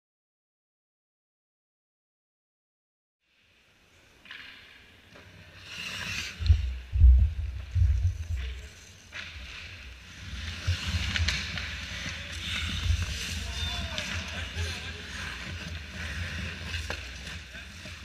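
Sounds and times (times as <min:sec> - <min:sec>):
skate blades scraping on ice: 0:05.5 - 0:06.8, 0:08.3 - 0:18.0.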